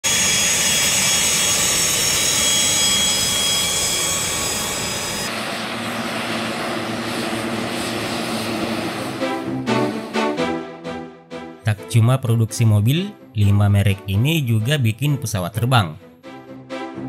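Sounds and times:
jet engines whining: 0.0 - 11.0
turboprop engines droning: 0.1 - 11.4.

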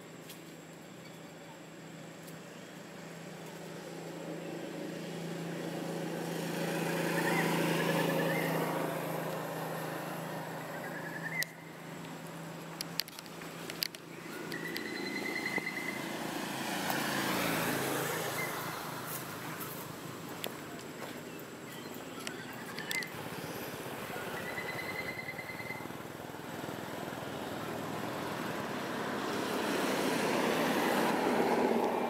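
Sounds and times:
motor vehicles passing: 1.7 - 32.0
sharp clicks: 22.2 - 23.2.

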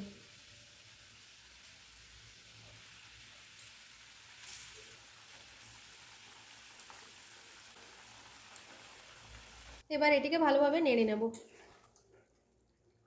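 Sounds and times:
fish hissing in hot gravy: 0.0 - 9.8
gravy sizzling in a pan: 0.0 - 9.9.

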